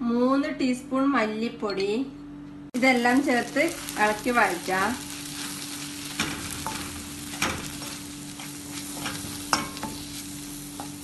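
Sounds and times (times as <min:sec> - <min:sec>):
low steady hum: 0:00.0 - 0:11.0
ghee sizzling: 0:02.8 - 0:11.0
spoon stirring and scraping pan: 0:05.0 - 0:11.0
spoon clinking against pan: 0:09.0 - 0:10.0.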